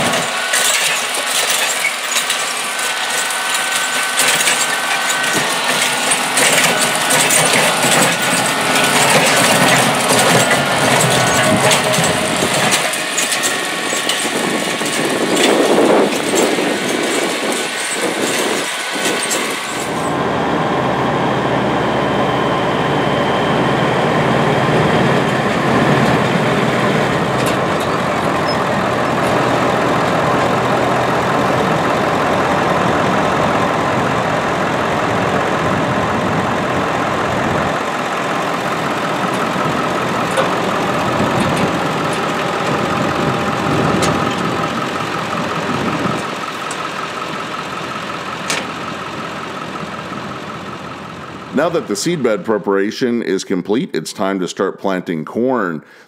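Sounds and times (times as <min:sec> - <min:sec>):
truck engine running: 0:00.0 - 0:53.8.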